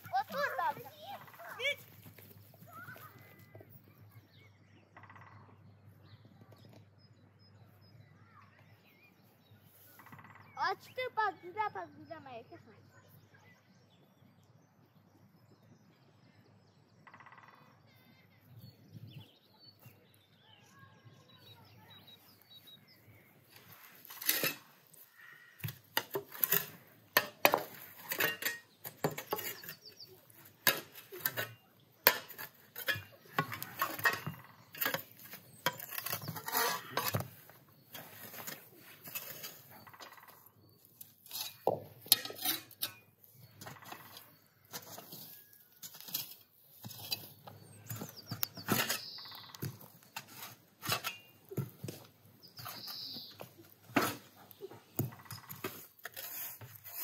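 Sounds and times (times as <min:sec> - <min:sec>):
faint birdsong: 0:00.0 - 0:57.0
metal spade scraping ash: 0:23.5 - 0:57.0
spade clinking on buckets and stones: 0:23.5 - 0:57.0.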